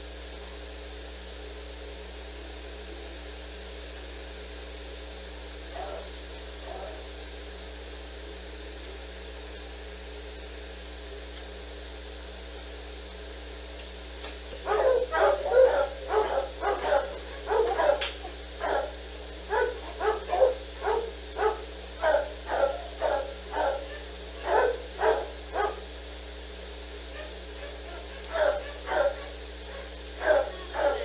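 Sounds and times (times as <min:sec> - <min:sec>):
steady low hum: 0:00.0 - 0:31.0
dog barking: 0:05.7 - 0:07.1, 0:14.6 - 0:25.9, 0:27.1 - 0:31.0.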